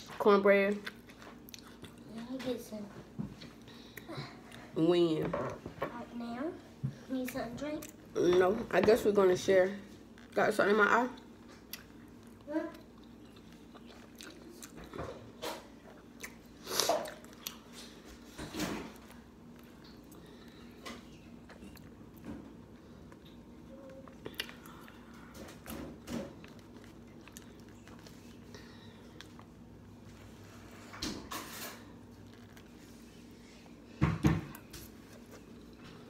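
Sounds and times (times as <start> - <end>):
chewing food: 0.7 - 2.2, 11.1 - 18.3, 19.0 - 30.7.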